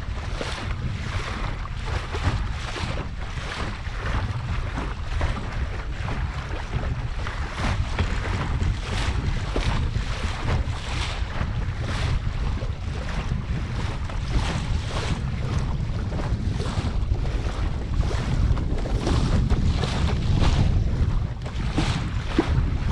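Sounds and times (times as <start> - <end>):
water splashing along hull: 0.0 - 22.9
wind rumble on microphone: 0.0 - 22.9.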